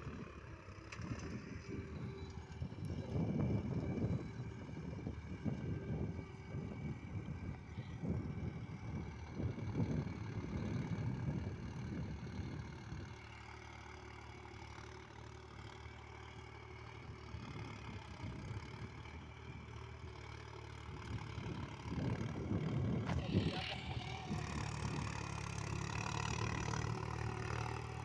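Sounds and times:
distant tractor diesel engine: 0.0s - 28.0s
wind rumbling on microphone: 2.6s - 13.1s, 20.9s - 25.4s.

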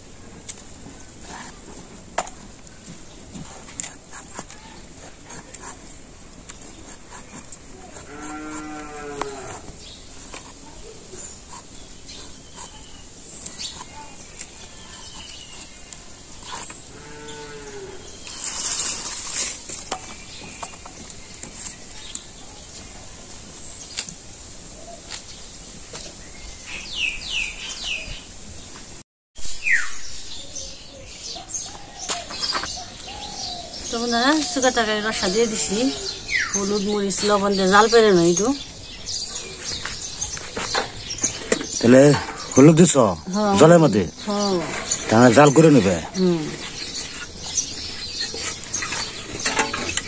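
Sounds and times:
rustling noise: 0.0s - 16.9s, 18.1s - 30.4s, 36.8s - 43.0s, 43.6s - 50.0s
birds chirping: 0.0s - 50.0s
cow mooing: 8.0s - 9.7s, 16.9s - 18.0s.

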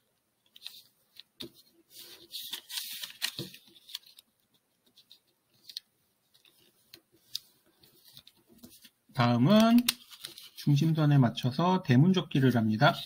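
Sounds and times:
paper rustling and crackling: 0.5s - 10.9s.

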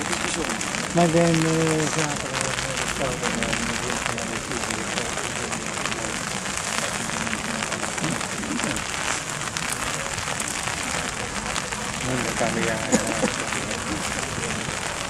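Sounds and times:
raindrop ticks: 0.0s - 15.0s
steady rain hiss: 0.0s - 15.0s.

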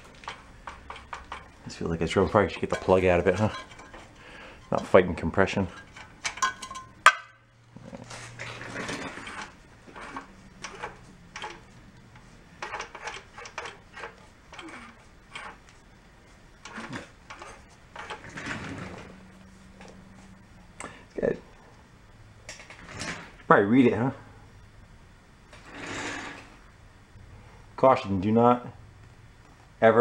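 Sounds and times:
metal tools clinking on engine parts: 0.1s - 7.3s.

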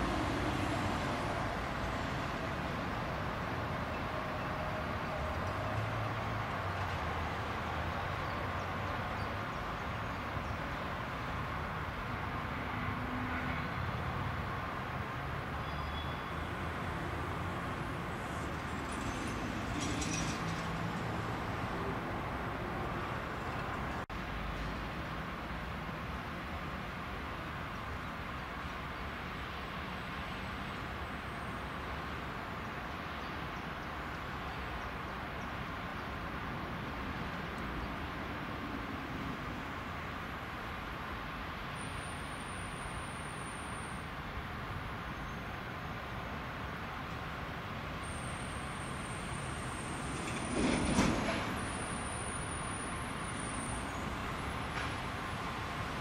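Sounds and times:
freight train rumbling: 0.0s - 8.1s, 15.6s - 24.4s, 48.9s - 56.0s
distant traffic: 0.0s - 56.0s.

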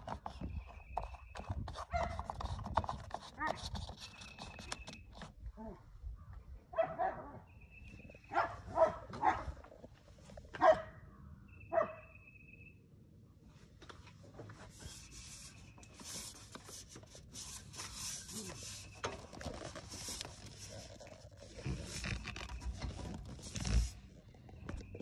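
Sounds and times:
phone handling rubbing and scraping: 0.0s - 5.4s, 14.4s - 25.0s.

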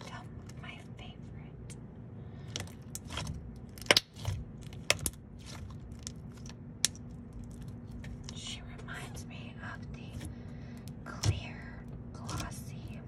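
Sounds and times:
slime crackling and popping: 2.5s - 8.4s.

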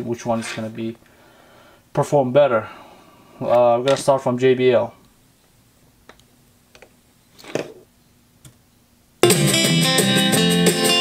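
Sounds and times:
guitar music through speaker: 9.2s - 11.0s.

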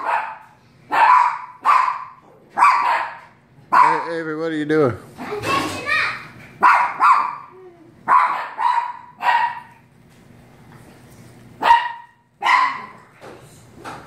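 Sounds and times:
small dog barking: 0.0s - 4.1s, 6.6s - 9.7s, 11.6s - 13.0s.

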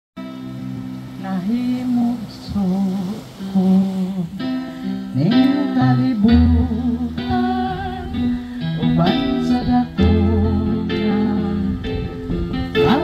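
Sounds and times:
amplified instrumental accompaniment: 0.2s - 2.8s, 3.4s - 13.0s
woman singing through pa: 5.1s - 13.0s.

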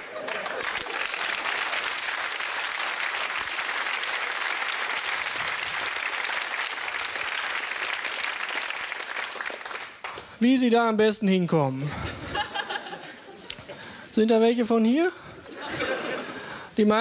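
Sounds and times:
audience applauding: 0.0s - 10.3s.

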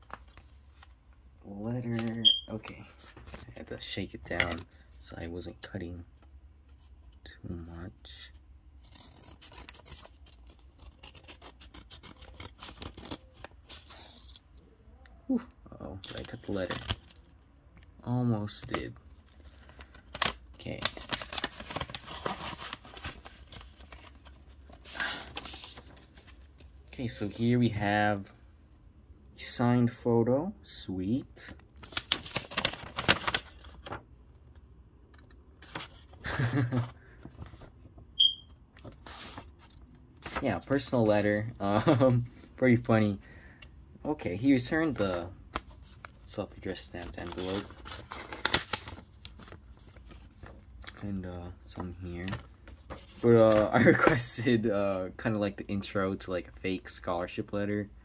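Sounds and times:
short high-pitched chirp: 2.2s - 2.5s, 38.2s - 38.5s
scissors snipping paper: 8.8s - 13.2s
paper rustling: 18.5s - 27.5s, 31.5s - 34.0s, 35.1s - 37.7s, 38.8s - 42.0s, 44.6s - 51.0s, 51.7s - 54.3s.

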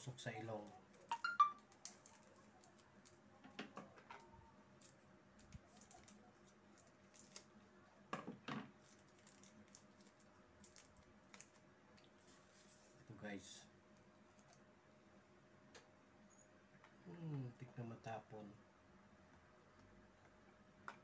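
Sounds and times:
wrapper crinkling: 4.7s - 7.6s, 8.8s - 12.4s.

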